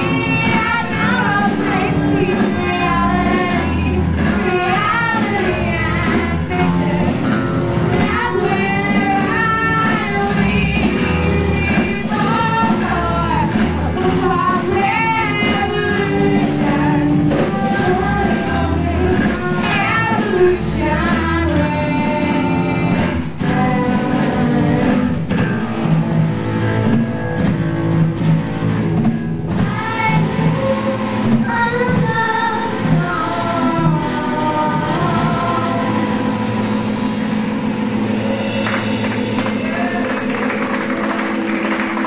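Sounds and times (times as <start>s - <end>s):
person singing: 0.0s - 25.9s, 29.6s - 36.4s
bass notes: 0.0s - 42.0s
punk rock band playing: 0.0s - 42.0s.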